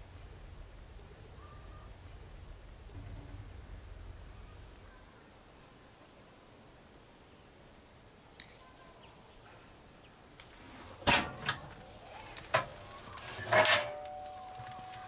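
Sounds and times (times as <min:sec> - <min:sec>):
metal stove door clanking: 0:11.0 - 0:11.8, 0:12.4 - 0:14.8.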